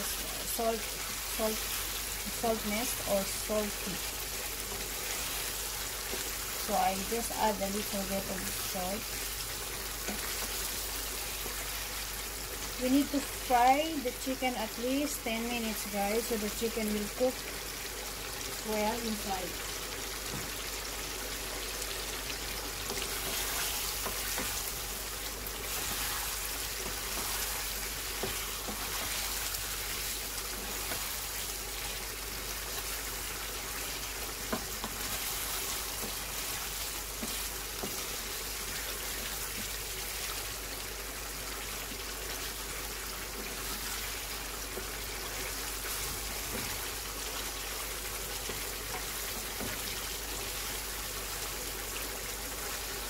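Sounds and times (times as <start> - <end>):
chicken sizzling in a pan: 0.0 - 53.0
wooden spoon stirring: 22.9 - 24.9, 25.5 - 31.5, 34.4 - 40.2.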